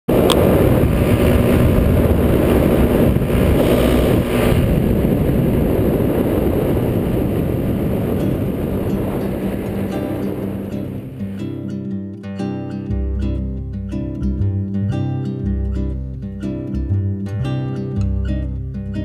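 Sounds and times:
paramotor engine and propeller drone: 0.1 - 11.4.

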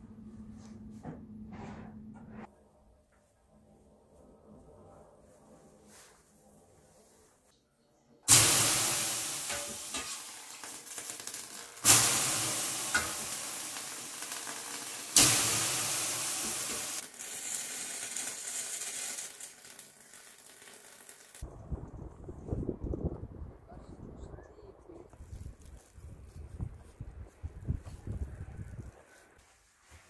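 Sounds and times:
steam hissing on hot stones: 8.3 - 21.4.

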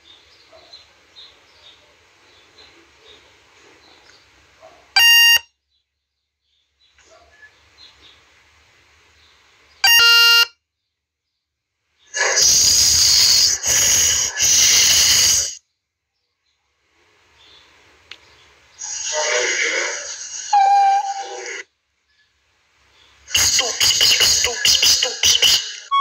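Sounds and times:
short electronic beeps: 5.0 - 5.4
static hiss: 12.1 - 15.6, 16.8 - 25.9.

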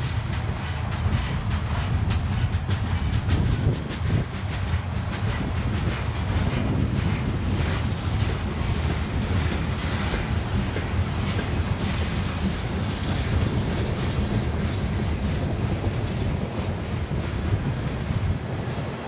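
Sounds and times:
freight train wheels on rails: 0.0 - 19.0.

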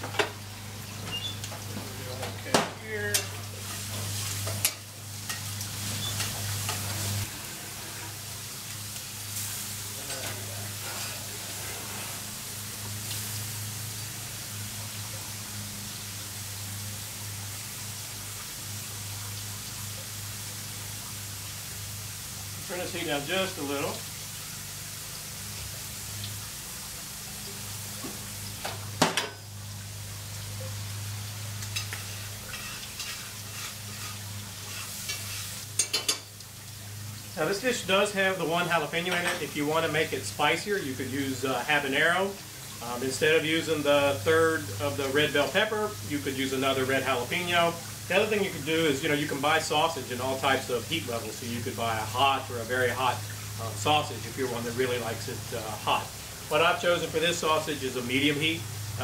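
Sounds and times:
food sizzling on a grill: 0.0 - 59.0
metal spatula scraping a grate: 10.1 - 12.3, 31.8 - 36.2.

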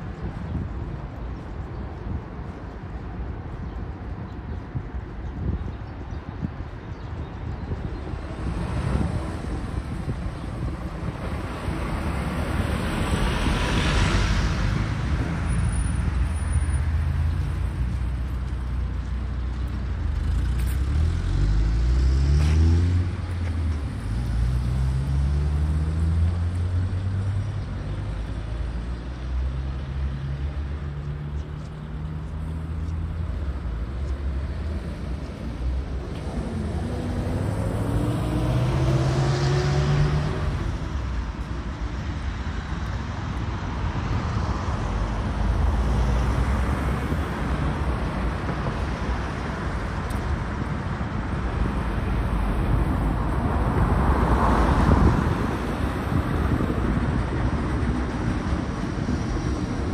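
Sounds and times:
cars driving past: 8.1 - 59.9
engines accelerating: 20.1 - 41.5.

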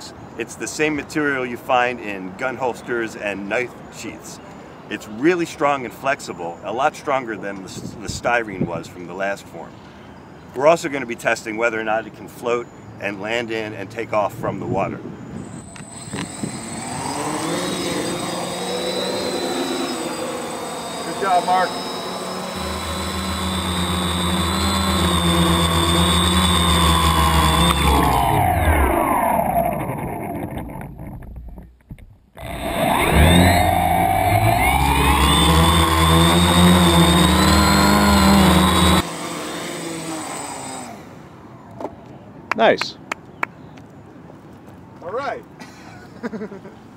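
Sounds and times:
drone propellers whining: 15.1 - 41.6.

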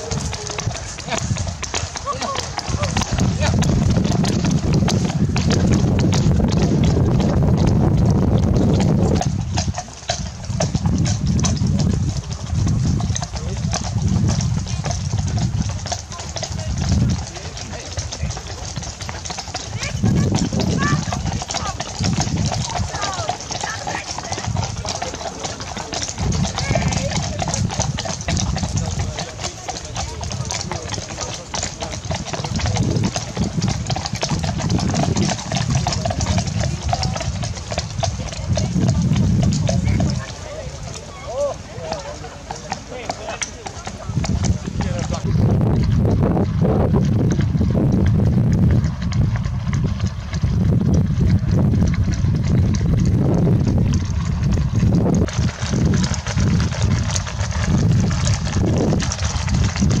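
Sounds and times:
steady low rumble: 0.0 - 17.4, 44.0 - 60.0
horse hooves clip-clopping: 0.0 - 60.0
wind buffeting microphone: 0.0 - 60.0.

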